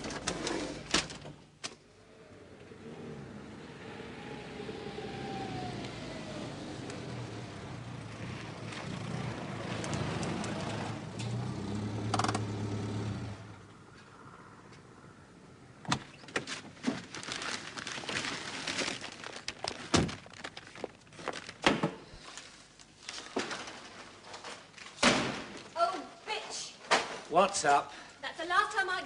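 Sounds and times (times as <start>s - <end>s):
small car engine running: 2.1s - 13.6s.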